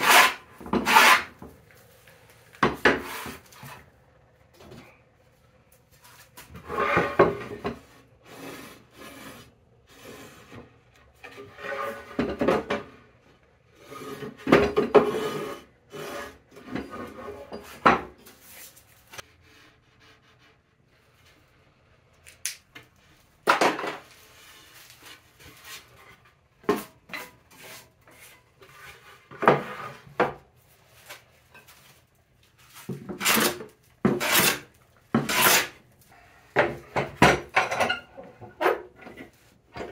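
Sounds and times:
hand plane shaving wood: 0.0s - 1.4s, 33.1s - 35.8s.

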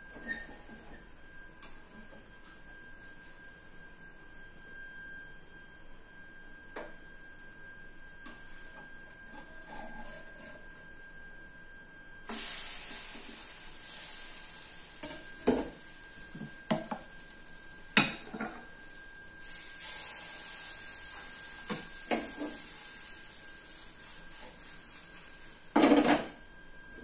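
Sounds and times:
pan scraping on stove: 9.2s - 10.8s
batter sizzling on grill pan: 12.3s - 26.4s.

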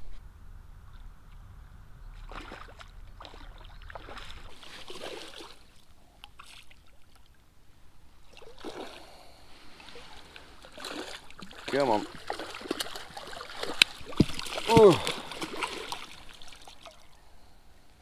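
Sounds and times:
fish splashing at the surface: 8.3s - 9.3s, 9.9s - 17.0s.

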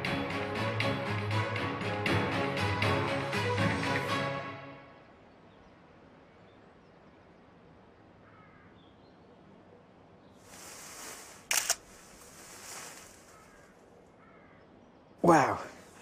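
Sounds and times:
outdoor ambience: 0.0s - 16.0s
faint bird call: 8.2s - 9.2s, 10.3s - 14.8s
soft hiss: 10.3s - 14.1s
camera shutter clicks: 11.4s - 11.9s.

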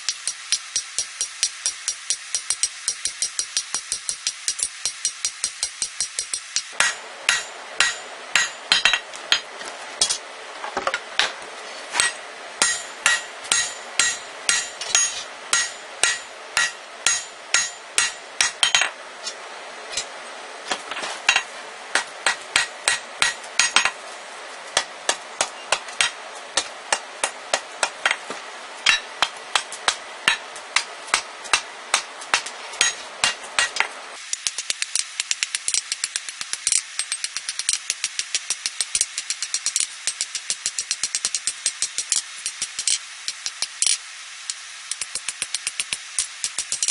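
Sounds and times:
hammer striking metal on anvil: 0.0s - 10.2s, 12.0s - 19.0s, 21.3s - 24.0s, 28.8s - 34.6s.

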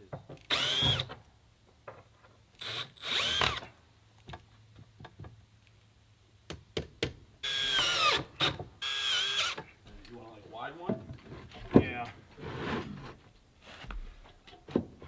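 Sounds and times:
cordless drill whirring: 0.5s - 1.1s, 2.6s - 3.7s, 7.4s - 9.6s.

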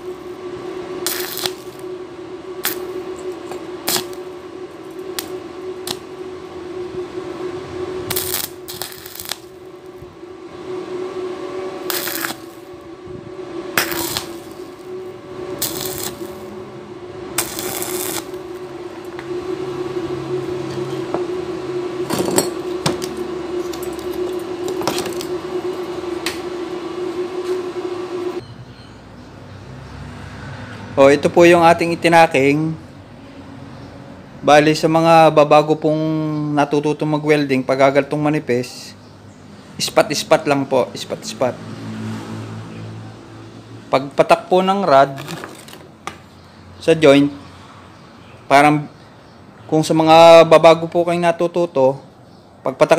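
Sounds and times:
welding arc crackling: 0.0s - 6.6s, 7.6s - 10.2s, 11.8s - 12.9s, 13.7s - 28.4s
steady hum: 0.0s - 28.4s.

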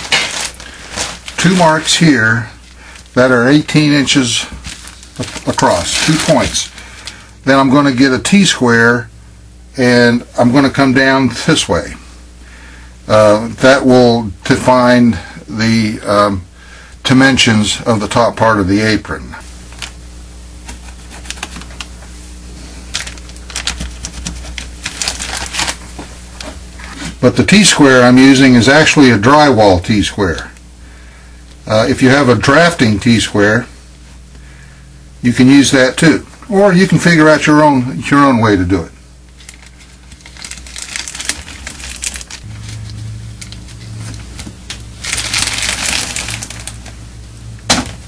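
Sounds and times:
plastic tarp crinkling: 0.0s - 3.2s, 3.9s - 7.2s, 22.8s - 27.1s, 39.4s - 47.0s
low hum: 37.5s - 48.0s.

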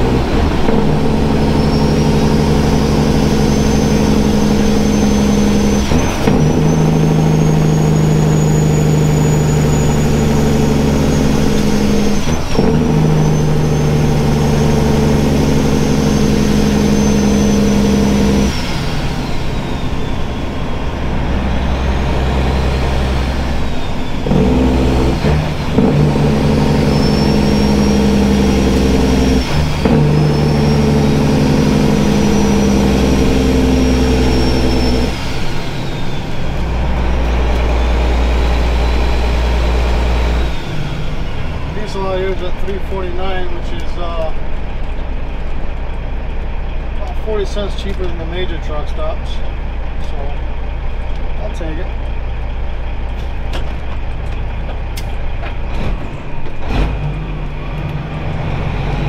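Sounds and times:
diesel truck engine under load: 0.0s - 59.0s
turbo whistle: 1.0s - 25.3s, 25.9s - 36.3s.

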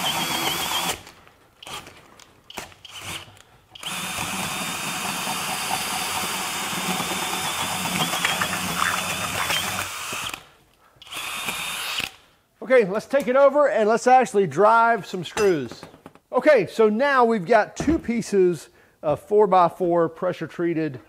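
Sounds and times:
cordless drill boring into wood: 0.0s - 1.0s, 2.5s - 12.2s.

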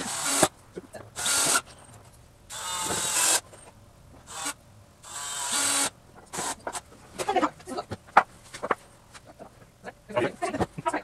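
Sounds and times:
cordless drill driving screws: 0.0s - 0.5s, 1.2s - 1.7s, 2.5s - 3.4s, 4.3s - 6.7s.

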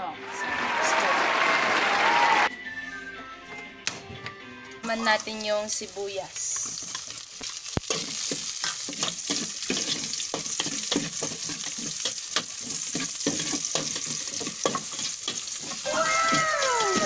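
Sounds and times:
garlic and onion sizzling in oil: 4.9s - 17.0s
metal spatula scraping a pot: 7.9s - 15.8s.

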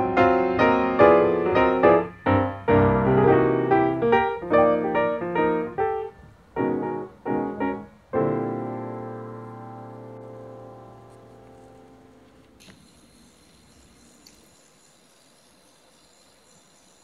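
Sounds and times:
piano music: 0.0s - 12.6s.

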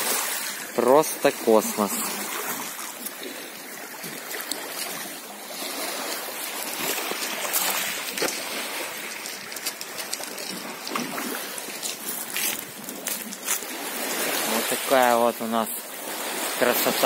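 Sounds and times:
small waves lapping among rocks: 0.0s - 17.0s
light clicks of pebbles: 6.1s - 13.7s.

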